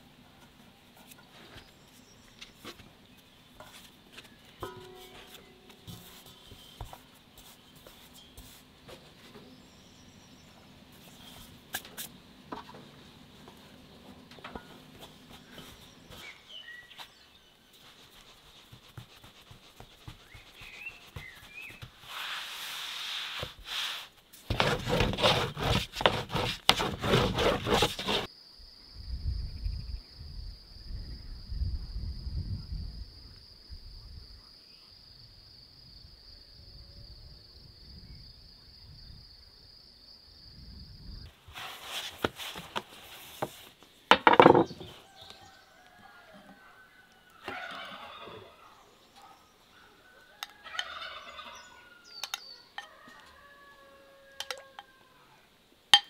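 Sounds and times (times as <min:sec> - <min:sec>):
dough rubbing and knocking on board: 0:17.8 - 0:28.3, 0:41.6 - 0:45.0
low wind rumble: 0:28.9 - 0:34.3
knocks on wooden board: 0:44.1 - 0:44.9.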